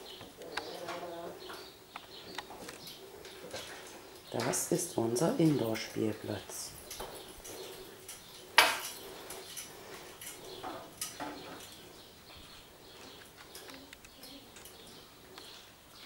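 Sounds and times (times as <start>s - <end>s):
paws clicking on tiled floor: 6.6s - 16.0s.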